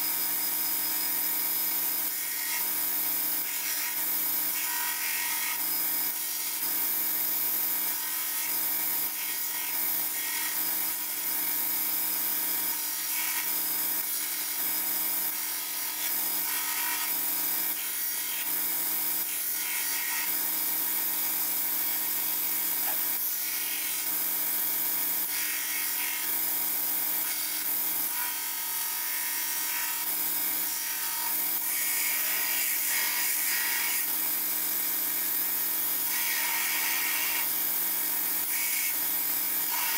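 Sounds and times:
belt grinder grinding steel: 0:07.6 - 0:34.1, 0:36.0 - 0:39.9.

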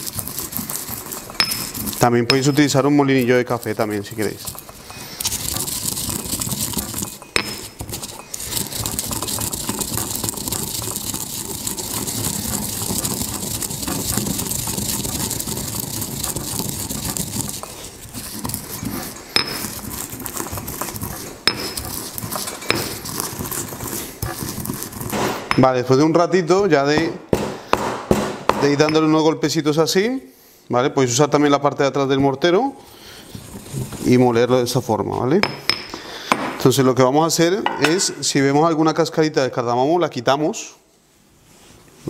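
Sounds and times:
pestle grinding spices: 0:00.0 - 0:25.8
pestle knocking on stone: 0:05.8 - 0:08.1, 0:19.4 - 0:19.8, 0:21.4 - 0:22.0, 0:26.9 - 0:29.1, 0:35.4 - 0:36.6.

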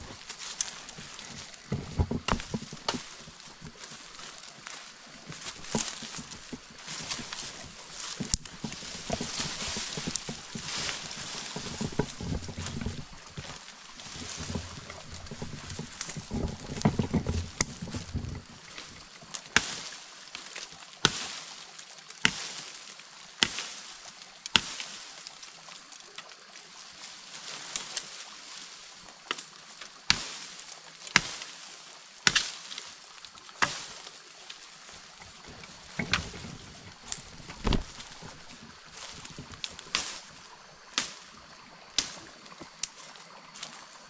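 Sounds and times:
leaves and brush rustling: 0:00.0 - 0:44.0
machete chopping vines: 0:00.2 - 0:18.3, 0:19.6 - 0:19.9, 0:21.0 - 0:21.4, 0:22.2 - 0:22.6, 0:23.4 - 0:23.8, 0:24.5 - 0:24.9, 0:30.1 - 0:31.5, 0:32.2 - 0:32.7, 0:33.6 - 0:34.0, 0:35.4 - 0:40.3, 0:40.9 - 0:41.4, 0:42.0 - 0:42.3.

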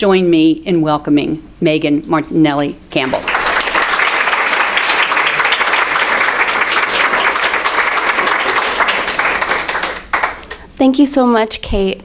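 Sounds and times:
audience applauding: 0:03.0 - 0:10.7.

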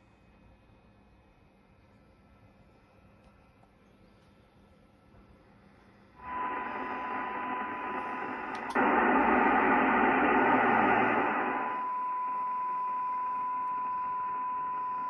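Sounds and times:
radio click: 0:06.2 - 0:11.8
radio band noise hiss: 0:06.2 - 0:11.9
steady radio tone: 0:06.2 - 0:15.0.

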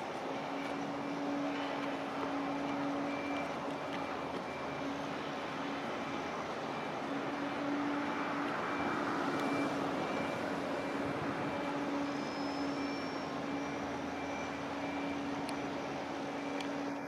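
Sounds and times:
machinery drone: 0:00.0 - 0:17.0
faint high-pitched beep: 0:02.5 - 0:04.9, 0:08.7 - 0:17.0.

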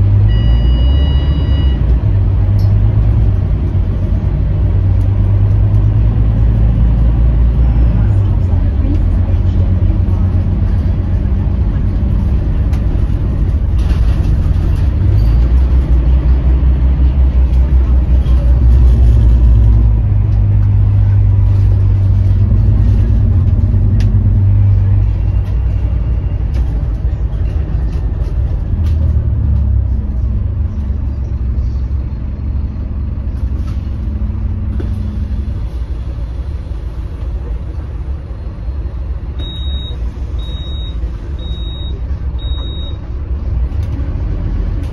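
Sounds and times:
bus diesel engine drone: 0:00.0 - 0:44.9
interior rattles and clicks: 0:08.7 - 0:16.3.

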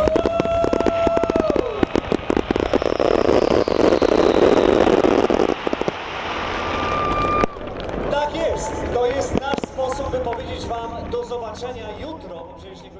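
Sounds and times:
fireworks crackling and popping: 0:00.0 - 0:12.4.

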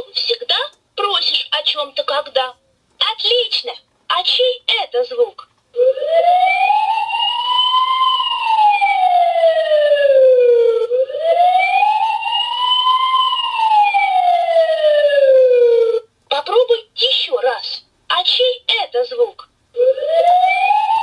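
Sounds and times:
siren wail from toy speaker: 0:05.8 - 0:16.1, 0:19.8 - 0:21.0.

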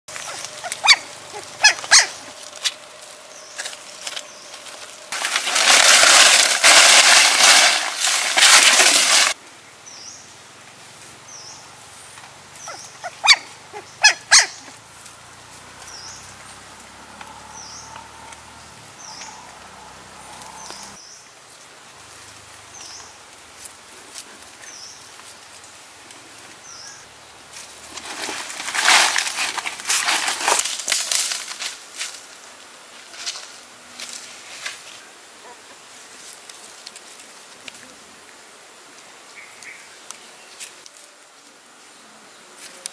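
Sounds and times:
footsteps crunching through leaves: 0:00.1 - 0:09.4, 0:20.4 - 0:35.1
rustling of dry leaves: 0:00.1 - 0:42.9.

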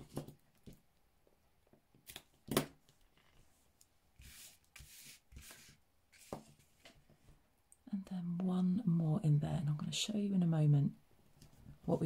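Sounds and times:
paper swishing: 0:04.2 - 0:06.7.

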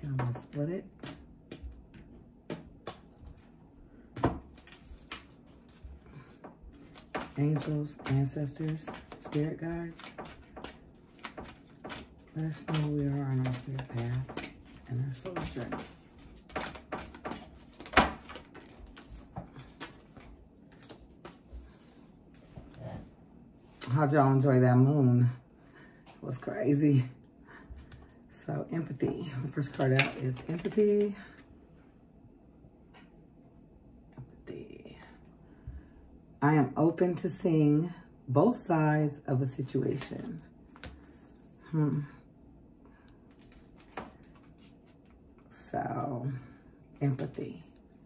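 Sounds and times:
cards being shuffled: 0:04.2 - 0:22.8, 0:28.9 - 0:31.5, 0:43.2 - 0:45.2.

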